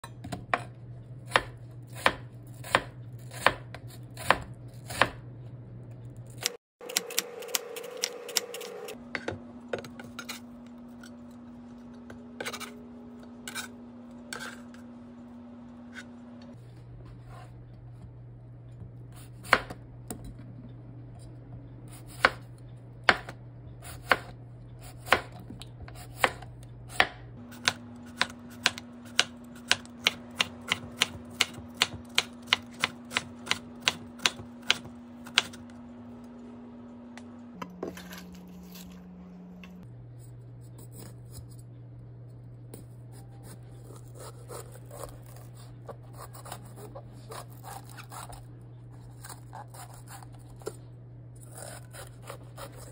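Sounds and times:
knife chopping on cutting board: 1.3s - 5.2s, 27.0s - 35.6s.

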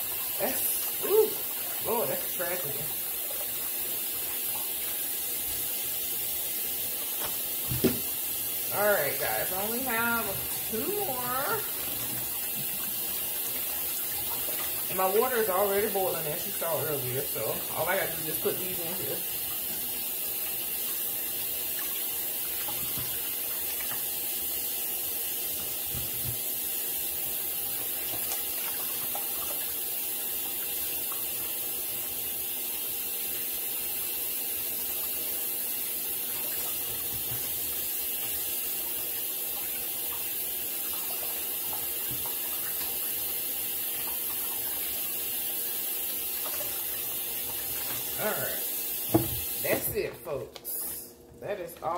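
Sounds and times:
faucet running into sink: 0.0s - 50.1s.

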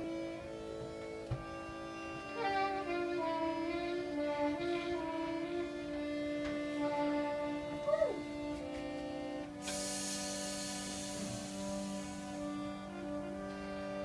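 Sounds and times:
instrument sliding between notes: 7.8s - 13.8s
drone of held tones: 9.5s - 14.0s.

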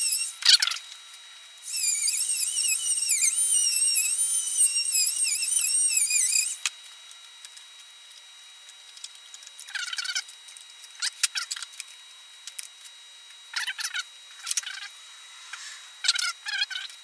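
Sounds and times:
rotary tool grinding whine: 0.0s - 0.8s, 1.6s - 6.8s.

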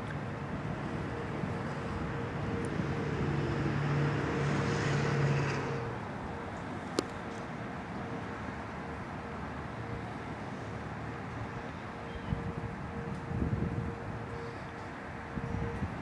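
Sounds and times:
distant warning siren: 0.0s - 16.0s
traffic: 0.0s - 16.0s
vehicle passing: 0.5s - 6.2s
wind noise: 12.2s - 14.3s, 15.3s - 16.0s.

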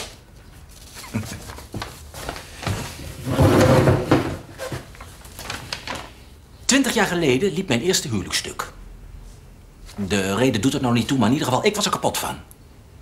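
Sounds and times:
paper rustling: 0.0s - 3.2s, 4.6s - 6.2s.

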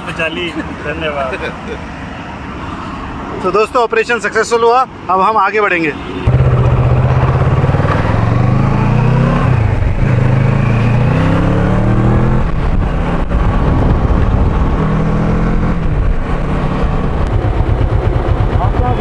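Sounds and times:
motorcycle engine accelerating: 6.2s - 19.0s.

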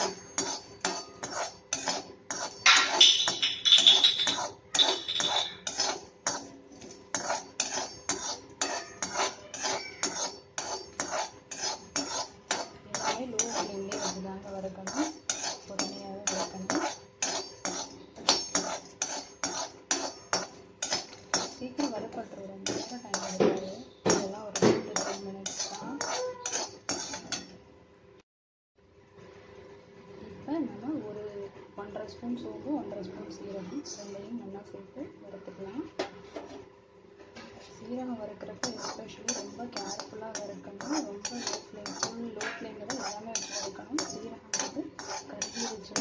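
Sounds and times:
spoon scraping metal pan: 0.0s - 27.6s, 38.4s - 46.0s.

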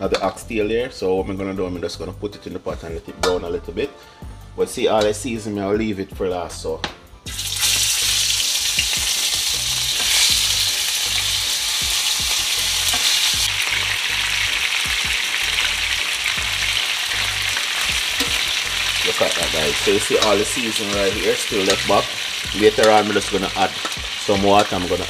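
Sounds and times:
meat sizzling in a hot pot: 7.3s - 25.0s.

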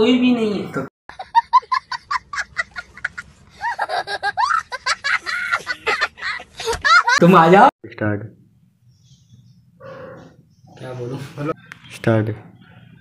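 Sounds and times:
young child laughing hysterically: 1.2s - 7.2s.

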